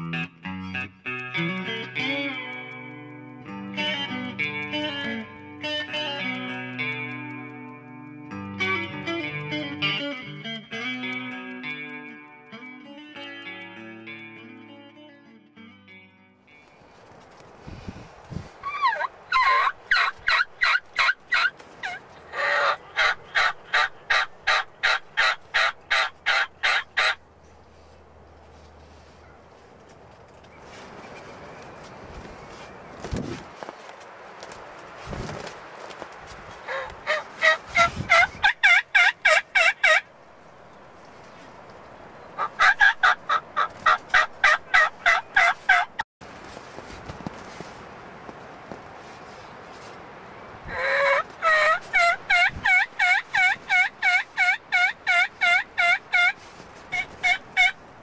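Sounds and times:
turkey yelping: 18.6s - 27.2s, 36.7s - 40.0s, 42.4s - 45.9s, 50.7s - 57.8s.

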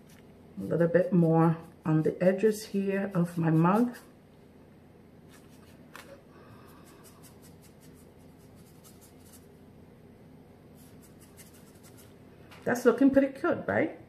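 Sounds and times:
paintbrush strokes on canvas: 0.0s - 4.1s, 6.6s - 9.5s, 10.7s - 12.2s
low room hum: 0.0s - 14.0s.

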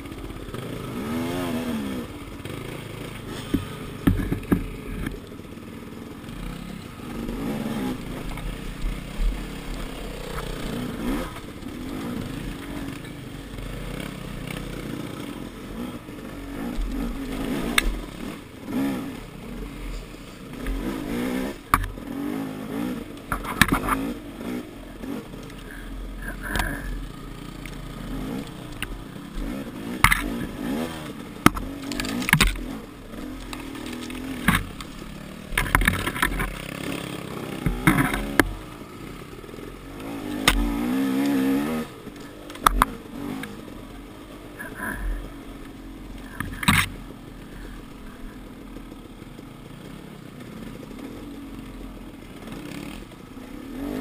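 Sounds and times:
dirt bike engine revving: 0.0s - 54.0s
sharp knocks and clatter: 2.4s - 5.2s, 21.6s - 22.0s, 23.2s - 24.2s, 27.6s - 38.6s, 42.2s - 43.5s, 46.2s - 47.0s.

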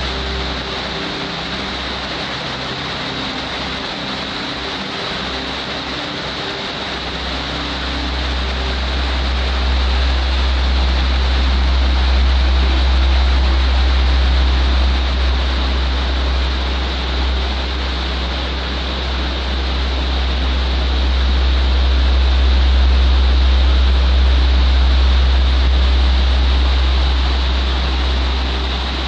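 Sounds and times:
waterfall and stream rushing: 0.0s - 29.0s
deep low rumble: 7.2s - 29.0s.

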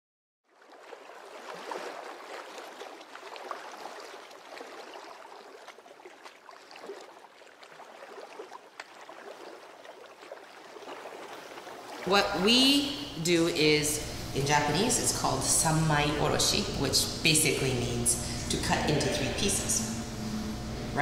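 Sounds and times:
small clicks and splashes: 0.5s - 12.1s
running water: 0.5s - 21.0s.

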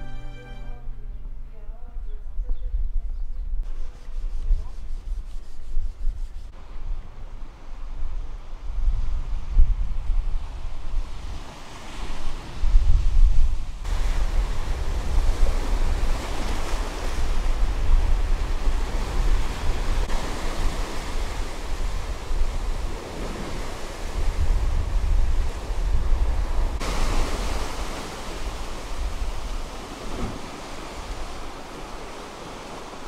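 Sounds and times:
wind rumbling on microphone: 1.1s - 33.0s
sea surf breaking on beach: 10.6s - 33.0s.

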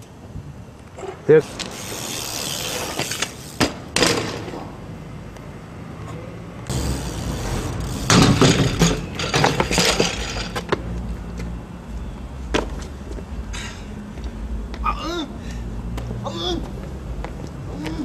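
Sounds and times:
bike slamming onto asphalt: 2.7s - 4.8s, 6.7s - 10.6s
clattering metal impacts: 8.0s - 10.7s.

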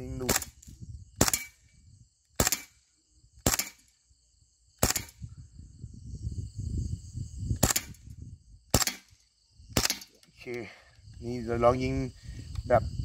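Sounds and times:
airsoft gun shots: 0.2s - 0.6s, 1.2s - 1.6s, 2.4s - 2.8s, 3.4s - 3.9s, 4.8s - 5.2s, 7.6s - 8.0s, 8.7s - 9.2s, 9.8s - 10.2s.

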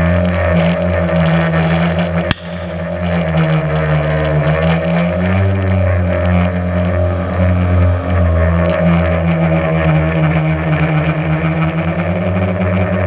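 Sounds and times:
explosive target blast: 2.3s - 3.4s
drone motors and propellers: 4.5s - 13.0s.

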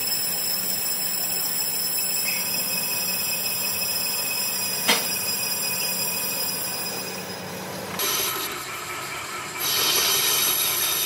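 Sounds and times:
lathe cutting metal whine: 0.0s - 11.0s
machine hum: 0.0s - 11.0s.

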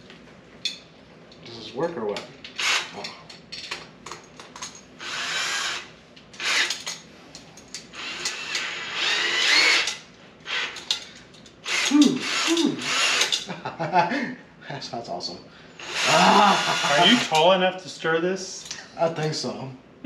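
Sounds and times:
drill motor whine: 5.0s - 6.8s, 8.0s - 9.9s, 11.6s - 13.4s, 15.8s - 17.4s.

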